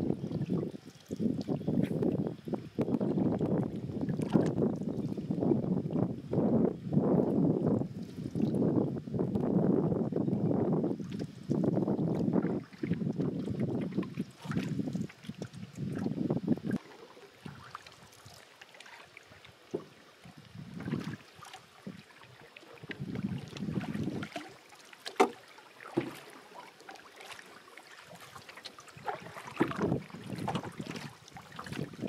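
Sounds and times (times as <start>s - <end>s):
paddle swishing water: 0.0s - 6.4s, 10.9s - 32.0s
wind on microphone: 0.0s - 18.4s, 19.2s - 24.6s, 28.9s - 32.0s
sharp knocks on canoe: 25.1s - 26.2s, 29.5s - 31.0s.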